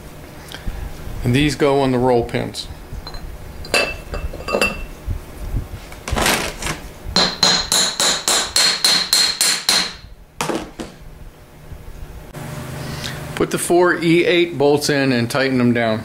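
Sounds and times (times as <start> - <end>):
hammer tapping metal: 7.2 - 10.0.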